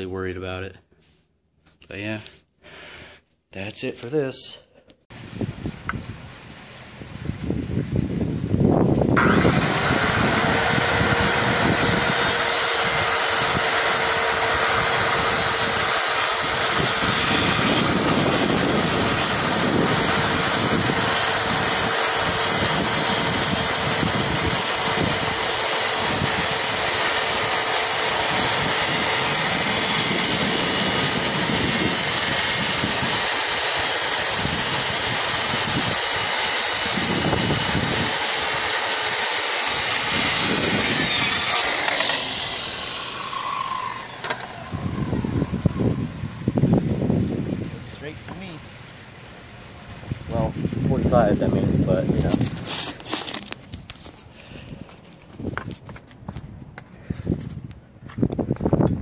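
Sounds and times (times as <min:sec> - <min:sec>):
circular saw cutting plywood: 0:09.2 - 0:46.5, 0:51.4 - 0:54.2.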